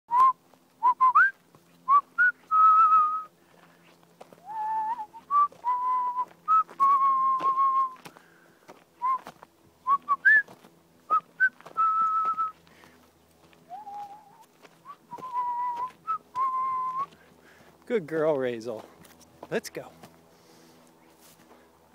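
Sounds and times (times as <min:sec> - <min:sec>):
person whistling: 0:00.1 - 0:03.3, 0:04.4 - 0:08.0, 0:09.0 - 0:09.3, 0:09.9 - 0:10.5, 0:11.1 - 0:12.6, 0:13.7 - 0:17.2.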